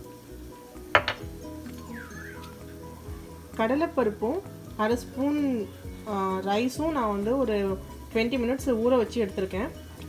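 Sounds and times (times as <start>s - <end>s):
soft background music: 0.0s - 10.0s
kitchenware clinking on countertop: 1.0s - 1.3s.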